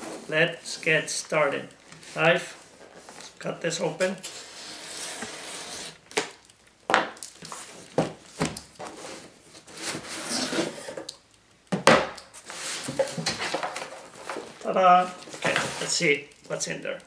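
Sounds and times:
cardboard scraping and rustling: 0:04.1 - 0:06.1, 0:07.5 - 0:11.1, 0:12.4 - 0:16.1.

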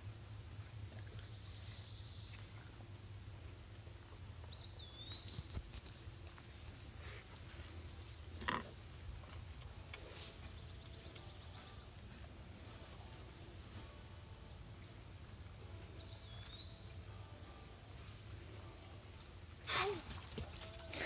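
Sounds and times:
low steady rumble: 0:00.0 - 0:19.6
whistled bird call: 0:16.0 - 0:17.2.

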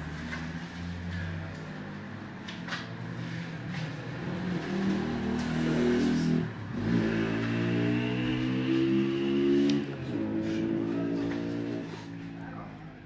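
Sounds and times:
vehicle engine revving: 0:00.0 - 0:12.4.

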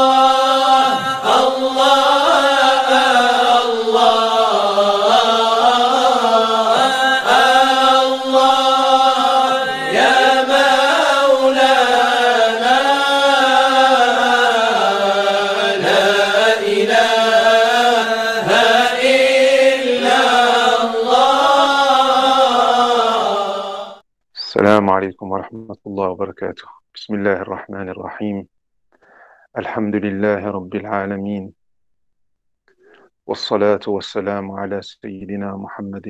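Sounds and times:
solo voice chanting: 0:00.0 - 0:24.7.

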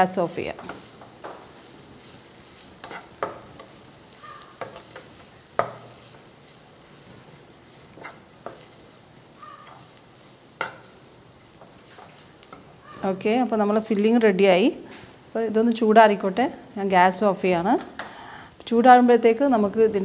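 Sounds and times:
faint steady hiss: 0:00.0 - 0:20.0
spatula scraping frying pan: 0:00.3 - 0:13.1
spatula knocking against pan: 0:02.8 - 0:06.0, 0:10.6 - 0:10.9.

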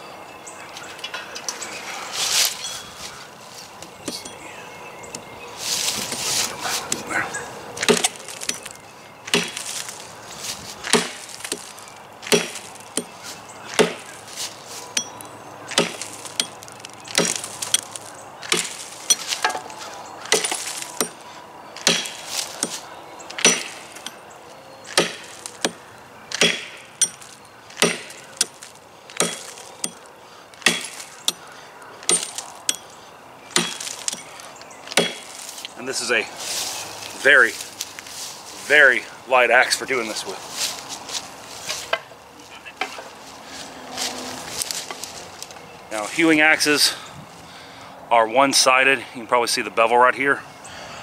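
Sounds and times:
axe chopping log: 0:07.8 - 0:08.6, 0:09.3 - 0:09.7, 0:10.8 - 0:13.1, 0:13.7 - 0:14.2, 0:15.7 - 0:21.2, 0:21.8 - 0:22.8, 0:23.4 - 0:24.2, 0:24.9 - 0:30.0, 0:30.6 - 0:31.4, 0:32.0 - 0:32.8, 0:33.6 - 0:34.3, 0:34.9 - 0:35.3.

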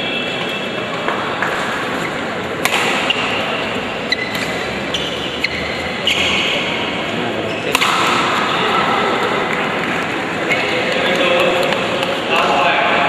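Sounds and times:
shoes squeaking on court floor: 0:00.0 - 0:12.3
sports hall background noise: 0:00.0 - 0:13.0
racket striking shuttlecock: 0:02.6 - 0:03.5, 0:07.7 - 0:08.6.

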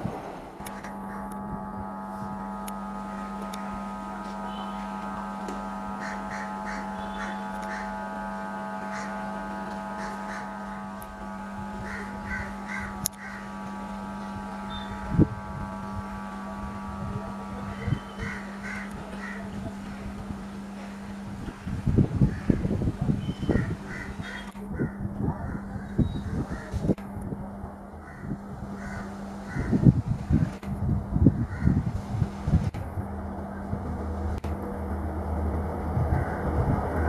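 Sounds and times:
steady low hum: 0:00.0 - 0:37.0
crows cawing: 0:05.9 - 0:10.8, 0:11.8 - 0:13.6, 0:18.2 - 0:19.5, 0:23.5 - 0:26.8, 0:28.0 - 0:29.8, 0:31.4 - 0:31.8, 0:36.1 - 0:36.5.

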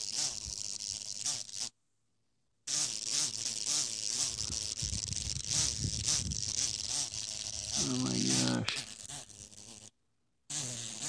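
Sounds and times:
horsefly buzzing in pulses: 0:00.0 - 0:01.7, 0:02.7 - 0:11.0.

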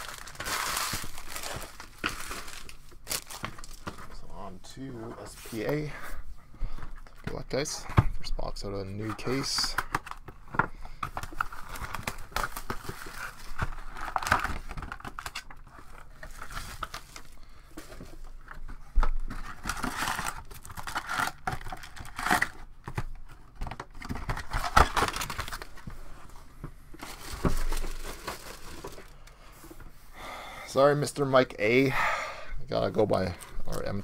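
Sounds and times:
packaging crinkling and tearing: 0:00.0 - 0:04.0, 0:11.0 - 0:17.4, 0:19.3 - 0:25.8, 0:27.0 - 0:29.3.

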